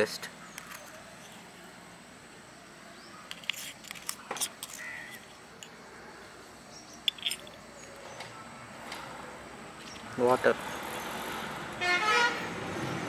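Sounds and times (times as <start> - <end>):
bird calling: 4.2 - 11.3.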